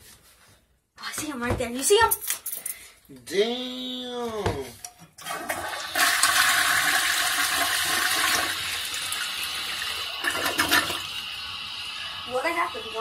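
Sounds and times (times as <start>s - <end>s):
toilet flushing: 5.2s - 13.0s.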